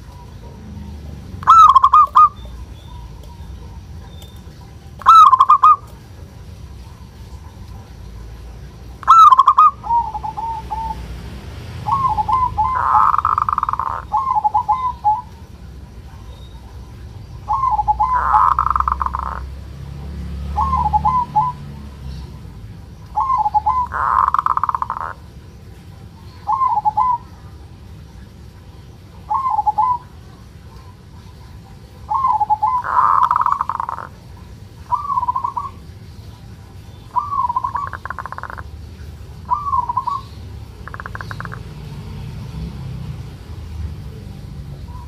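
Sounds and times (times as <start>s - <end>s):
dove trilled coos: 0.0s - 42.6s, 43.5s - 45.0s
harsh rasping bird call: 1.4s - 3.1s, 5.0s - 5.9s, 9.0s - 11.0s, 11.8s - 15.3s, 17.4s - 19.6s, 23.2s - 25.3s, 32.1s - 34.2s, 37.1s - 38.7s, 39.4s - 41.6s.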